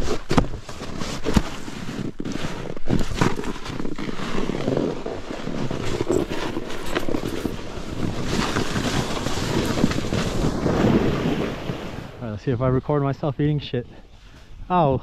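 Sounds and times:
snowboard sliding over snow: 0:00.0 - 0:12.3
wind rushing over microphone: 0:06.6 - 0:12.9.

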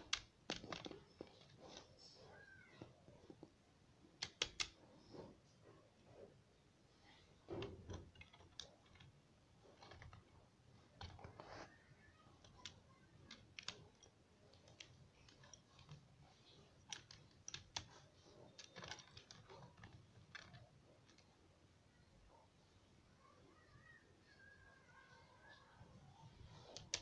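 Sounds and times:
bird pecking calculator keys: 0:00.0 - 0:01.5, 0:04.2 - 0:04.8, 0:12.2 - 0:21.2, 0:26.6 - 0:27.0.

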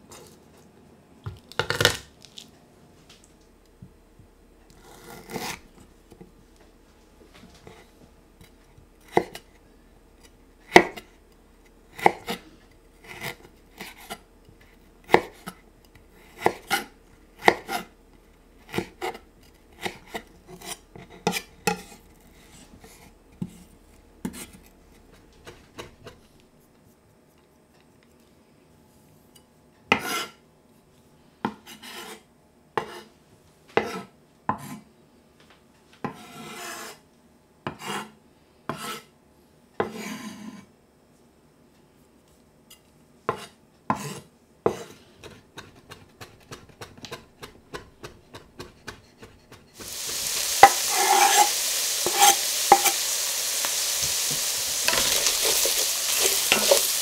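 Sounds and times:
blade scraping across board: 0:49.8 - 0:57.0
knife slicing on wooden board: 0:49.8 - 0:57.0.

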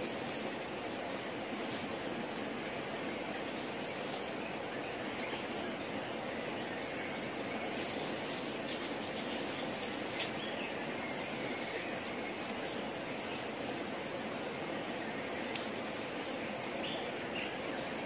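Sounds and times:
insects chirring: 0:00.0 - 0:18.0
outdoor hiss: 0:00.0 - 0:18.0
sharp click: 0:15.5 - 0:15.8.

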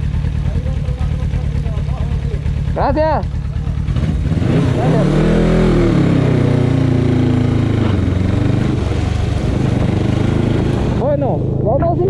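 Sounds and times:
motorcycle engine accelerating: 0:00.0 - 0:12.0
wind and road noise: 0:02.7 - 0:12.0.

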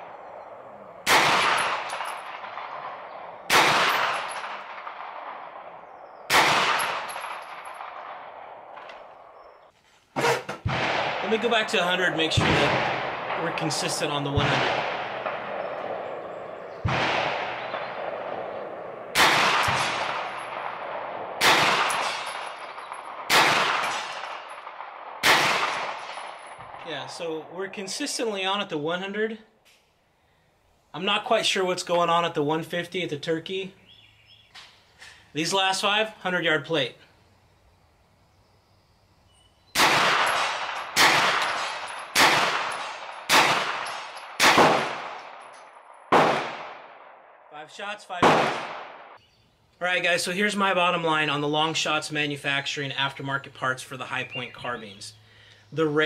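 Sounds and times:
gunshots with echoing tail: 0:00.0 - 0:09.5, 0:10.2 - 0:28.0, 0:39.8 - 0:47.5, 0:48.1 - 0:49.2.

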